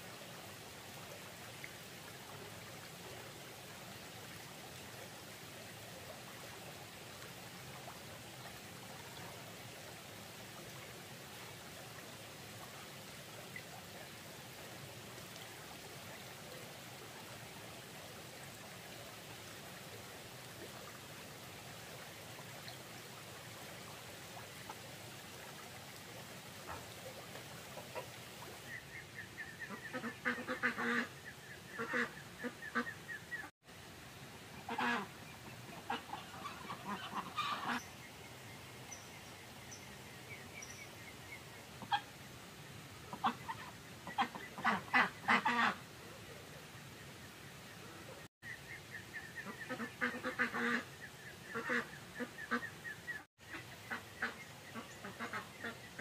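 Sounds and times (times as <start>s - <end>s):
faint hiss: 0.0s - 56.0s
waterfowl honking: 29.6s - 31.1s, 31.8s - 33.0s, 34.7s - 35.1s, 35.9s - 37.8s, 43.1s - 45.8s, 49.7s - 50.8s.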